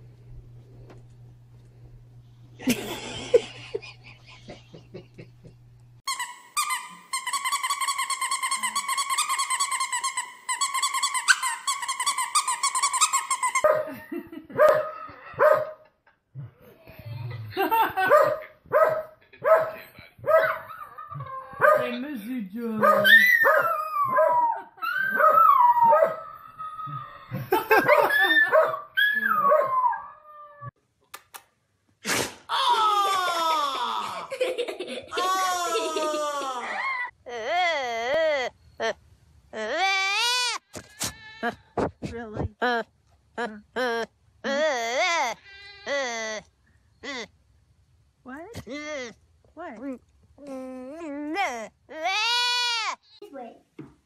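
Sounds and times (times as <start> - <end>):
small dog howling: 23.0 - 27.4, 28.0 - 30.7
small dog whining and yipping: 23.0 - 27.4, 28.0 - 30.7
woman howling wail: 23.2 - 27.4, 32.5 - 34.3, 35.2 - 37.1.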